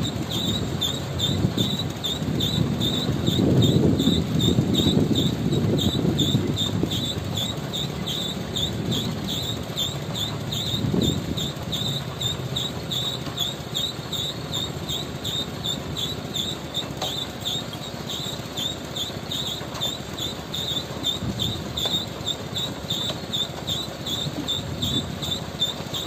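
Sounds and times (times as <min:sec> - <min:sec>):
diesel engine rumble: 0:00.0 - 0:26.0
high chirping: 0:00.0 - 0:26.0.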